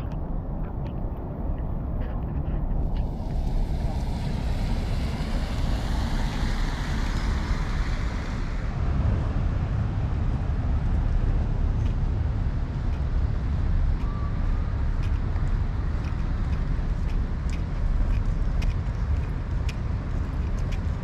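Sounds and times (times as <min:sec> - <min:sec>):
wind rumble on microphone: 0:00.0 - 0:21.0
tyres hissing on wet road: 0:03.0 - 0:09.3.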